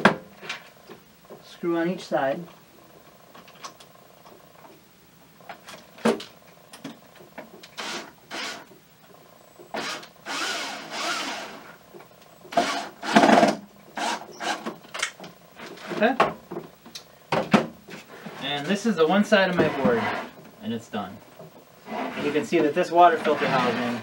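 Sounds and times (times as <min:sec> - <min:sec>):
cordless drill driving screws: 0:07.8 - 0:08.7, 0:09.8 - 0:11.7, 0:12.5 - 0:13.3, 0:14.0 - 0:14.7.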